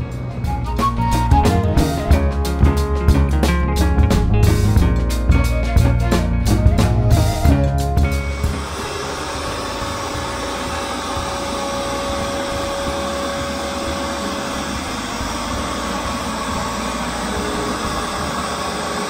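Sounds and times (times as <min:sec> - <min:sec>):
shop vacuum running: 0:00.0 - 0:19.0
orbital sander sanding: 0:08.4 - 0:19.0.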